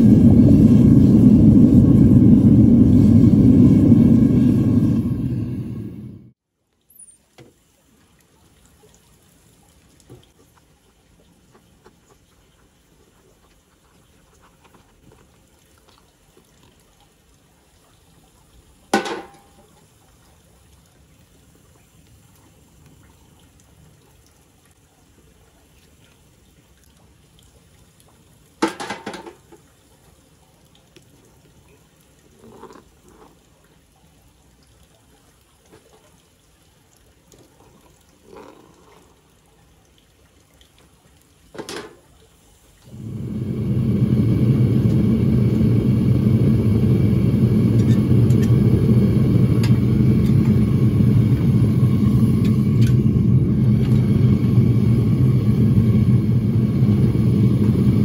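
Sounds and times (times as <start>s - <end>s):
propane burner roaring: 0.0s - 6.4s, 42.8s - 58.0s.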